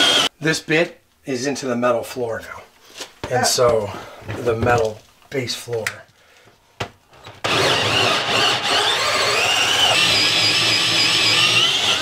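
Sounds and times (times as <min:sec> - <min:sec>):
drill cutting sheet metal: 0:00.0 - 0:00.3, 0:07.4 - 0:12.0.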